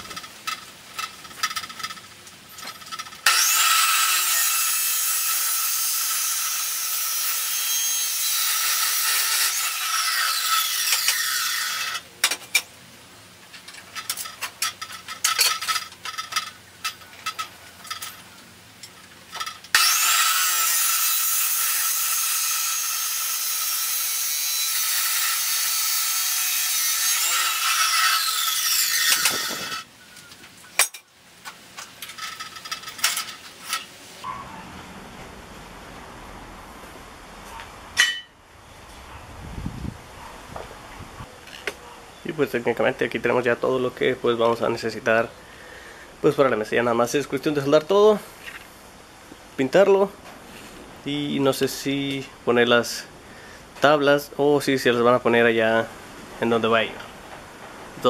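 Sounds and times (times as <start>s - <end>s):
metal clicks and clanks: 0.0s - 3.3s, 13.5s - 19.8s, 30.2s - 33.9s
chop saw cutting steel: 3.0s - 12.1s, 19.4s - 29.9s.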